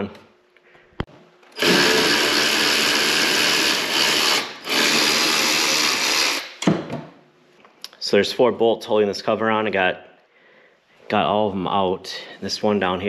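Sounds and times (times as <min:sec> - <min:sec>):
electric ratchet running: 0:01.5 - 0:06.6.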